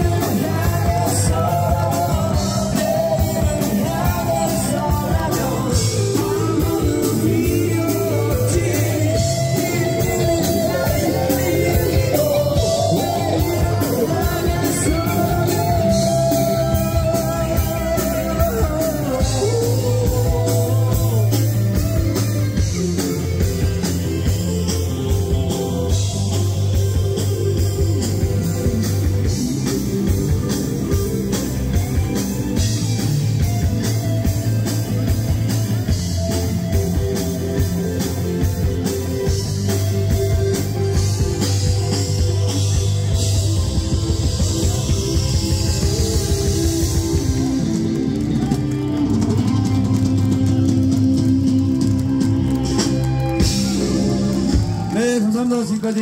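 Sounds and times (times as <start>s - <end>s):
person singing: 0.0s - 24.6s
drum kit beat: 0.0s - 56.0s
rock band playing: 0.0s - 56.0s.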